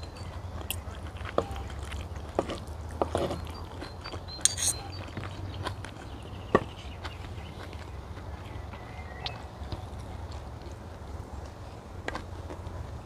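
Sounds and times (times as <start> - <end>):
chewing food: 0.0 - 13.0
cutlery clinking on a plate: 4.4 - 5.0.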